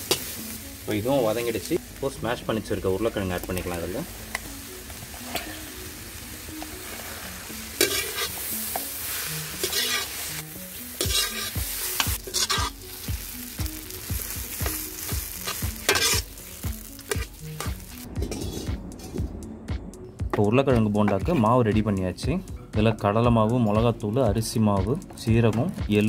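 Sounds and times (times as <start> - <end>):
food sizzling: 0.0 - 19.6
spatula scraping a pan: 6.8 - 8.4, 9.5 - 10.4, 11.0 - 12.8, 15.4 - 16.3, 17.1 - 19.2.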